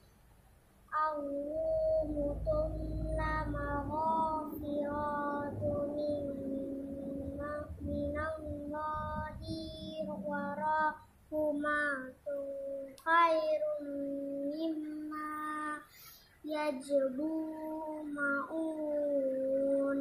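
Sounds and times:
boy chanting verses: 0.9s - 20.0s.

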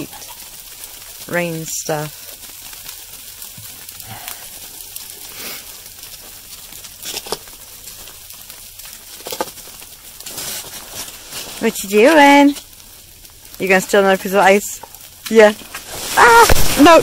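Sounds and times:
sleet and freezing rain hissing: 0.0s - 17.0s
footsteps crunching on icy snow: 9.5s - 12.7s.

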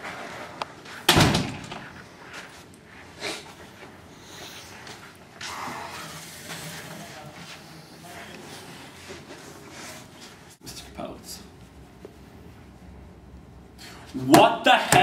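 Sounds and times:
door slamming: 1.1s - 1.9s.

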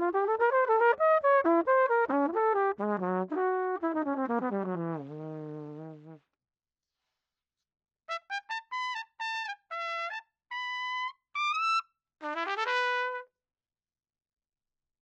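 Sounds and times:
solo trumpet: 0.0s - 6.2s, 8.1s - 13.3s.

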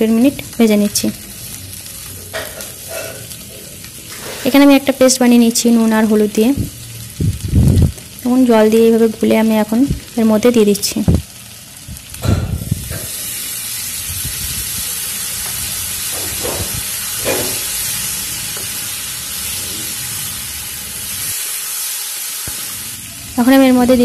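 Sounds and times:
loud sizzling hiss: 0.0s - 24.0s
paste hitting hot oil: 15.4s - 17.8s.

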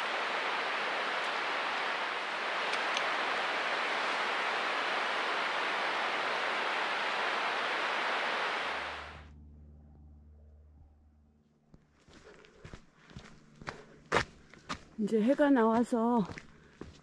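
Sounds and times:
rushing water: 0.0s - 9.3s.

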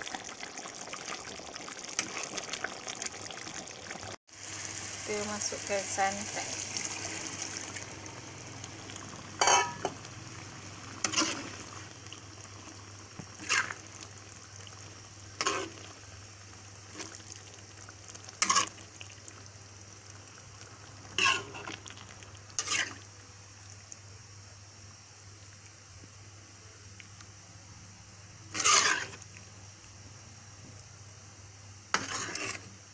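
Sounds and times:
low steady sizzle: 0.0s - 32.9s
liquid pouring into hot wok: 6.4s - 19.5s
metal spatula scraping wok: 9.4s - 10.0s, 11.0s - 11.8s, 13.4s - 13.8s, 15.4s - 15.8s, 18.4s - 18.8s, 21.2s - 21.8s, 22.6s - 23.0s, 28.5s - 29.2s, 31.9s - 32.7s.

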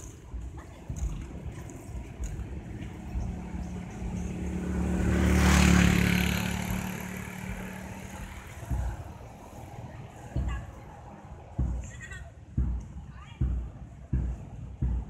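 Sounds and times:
vehicle driving past: 2.5s - 10.2s.

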